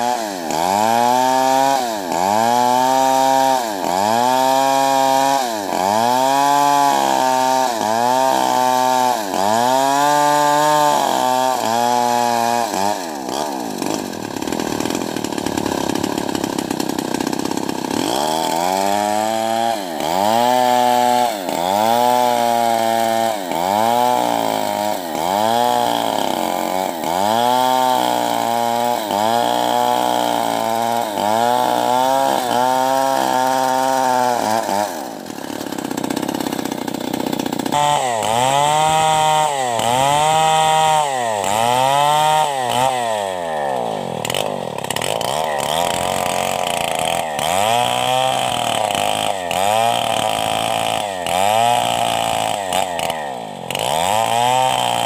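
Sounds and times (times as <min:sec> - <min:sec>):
chainsaw cutting a log: 0:00.0 - 0:55.0.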